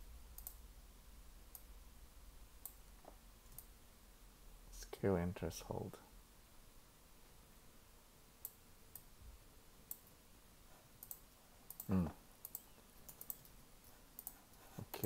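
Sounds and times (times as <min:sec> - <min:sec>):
mouse and keyboard clicks: 0:11.0 - 0:13.5.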